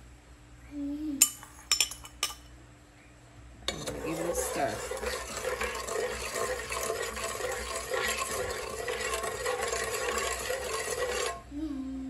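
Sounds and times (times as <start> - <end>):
spoon clinking against pot: 3.7 - 11.4
metal spoon stirring liquid: 3.7 - 11.5.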